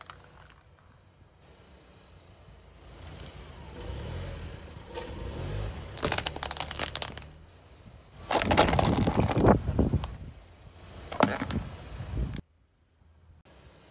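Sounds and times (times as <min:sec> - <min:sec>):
car tyre rolling: 0:00.0 - 0:12.4
egg crackling and crunching: 0:06.0 - 0:07.3.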